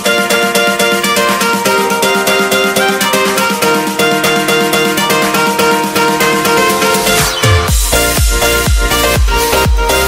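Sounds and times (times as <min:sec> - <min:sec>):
music with plucked notes: 0:00.0 - 0:10.0.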